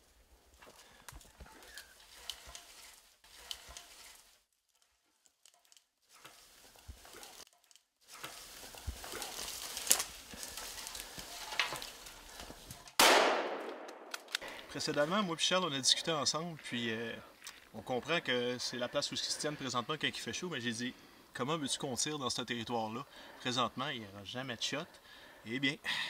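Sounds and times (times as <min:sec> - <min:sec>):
footsteps through brush: 0:00.0 - 0:13.0
twigs snapping: 0:00.5 - 0:15.0
rifle shot with echo: 0:13.0 - 0:14.5.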